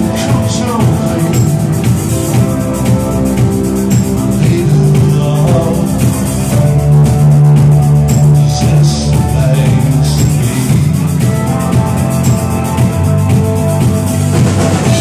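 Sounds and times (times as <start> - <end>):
bass guitar: 0.0 - 15.0
drum kit beat: 0.0 - 15.0
electric guitar: 0.0 - 15.0.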